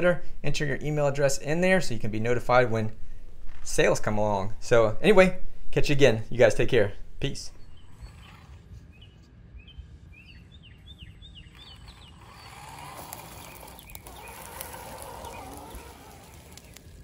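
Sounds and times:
small birds chirping: 7.3s - 17.0s
electric motor whirring: 11.5s - 17.0s.

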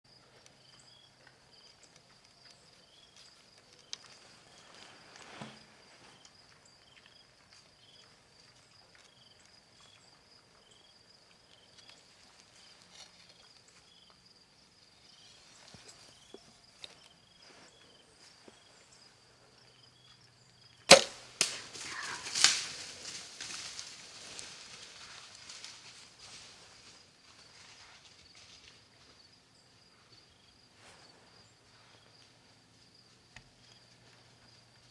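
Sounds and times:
insects buzzing and chirping: 0.1s - 34.9s
bow shot crack: 20.9s - 22.8s
animals crashing and scuffling: 21.4s - 28.6s.

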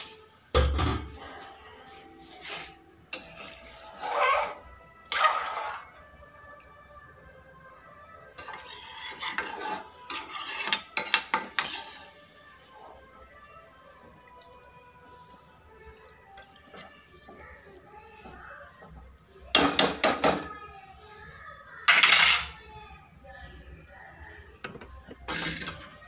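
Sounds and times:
liquid swishing: 2.4s - 6.0s, 8.4s - 12.7s
metal skimmer scraping a metal pan: 2.4s - 6.0s, 8.4s - 12.2s, 25.3s - 25.9s.

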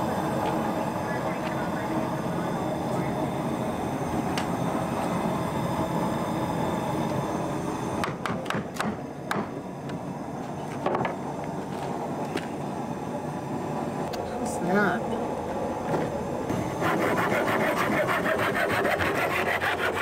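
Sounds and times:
steam box rushing roar: 0.0s - 8.0s, 16.2s - 20.0s
sharp knocks: 8.0s - 9.5s.

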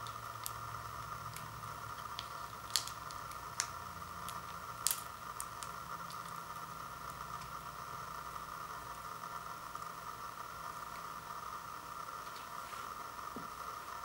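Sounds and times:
steady hiss: 0.0s - 14.0s
sharp packet crackles: 2.1s - 6.4s.

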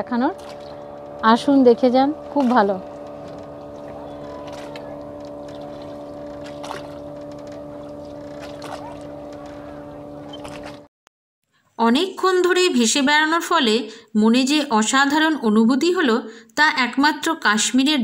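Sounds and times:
boat engine running: 0.0s - 10.9s.

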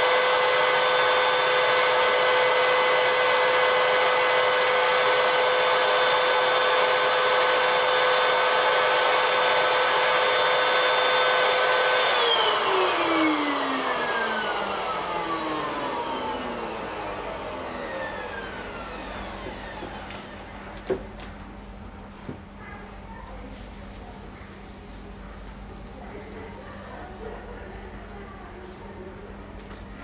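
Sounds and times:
motor winding down: 0.0s - 20.6s
vacuum cleaner whine: 0.0s - 21.4s.

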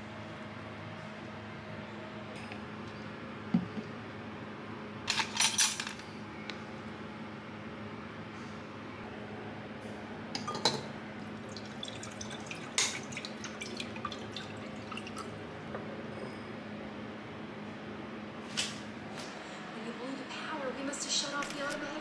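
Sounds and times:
liquid dripping: 11.2s - 15.4s.

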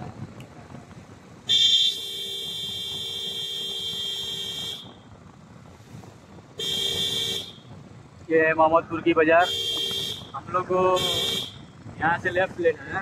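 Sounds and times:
vehicle horn honking: 1.5s - 5.1s, 6.6s - 7.7s, 9.4s - 11.7s.

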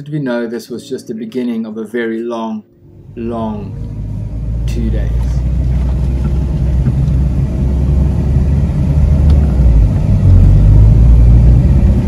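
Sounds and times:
vehicle engine from inside cabin: 3.0s - 12.0s.

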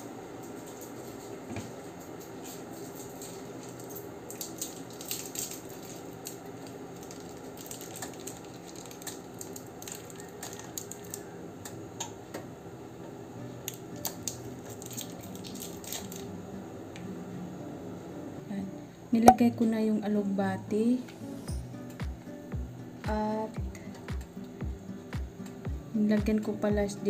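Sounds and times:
water simmering in a covered pot: 3.1s - 12.2s.

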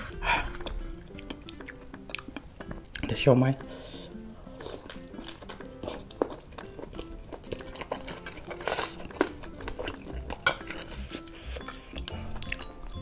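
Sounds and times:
mouth chewing: 0.0s - 3.2s, 3.9s - 13.0s
spoon and fork clinking on bowl: 8.0s - 11.0s, 12.0s - 12.8s.

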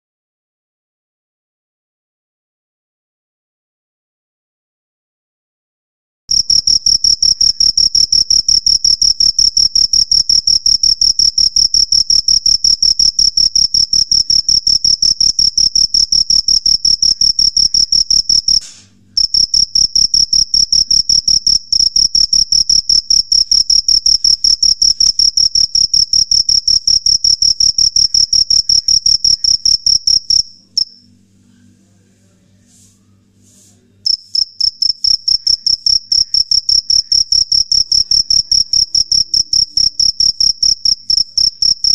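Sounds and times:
cricket chirping: 6.3s - 31.1s, 34.1s - 41.9s.

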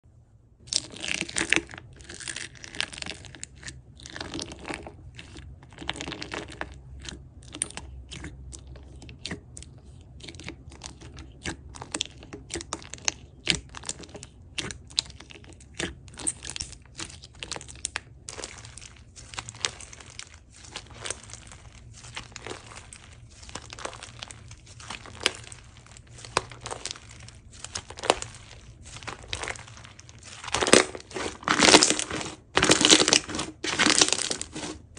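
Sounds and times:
slime squishing by hand: 0.6s - 34.9s
clay slices crunching: 15.6s - 34.9s.

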